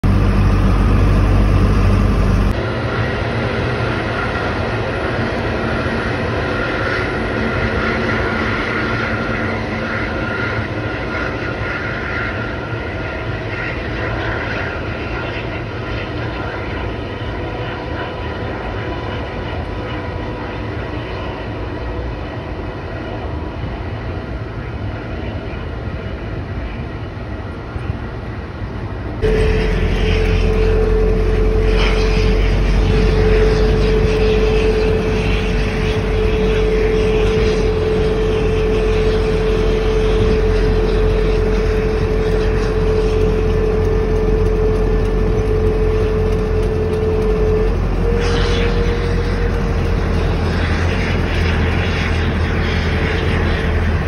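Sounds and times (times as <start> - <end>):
jet engines running: 0.0 - 54.0.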